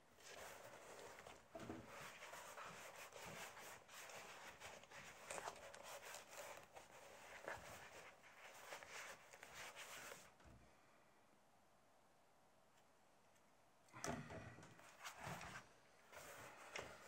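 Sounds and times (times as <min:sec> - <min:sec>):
hands rubbing leather: 0:00.2 - 0:10.3.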